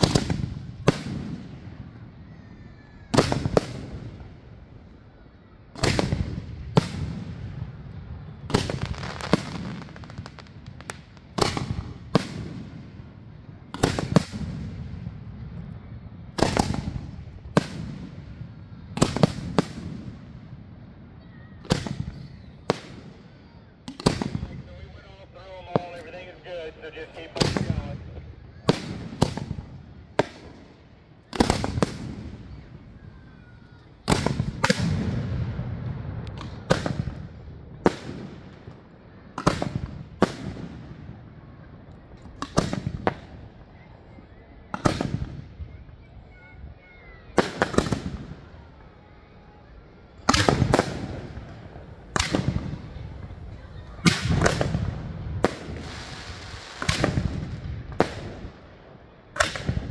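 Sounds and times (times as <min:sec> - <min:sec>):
fireworks bangs with echo: 0:00.0 - 0:05.1, 0:05.7 - 0:43.9, 0:44.7 - 0:59.9.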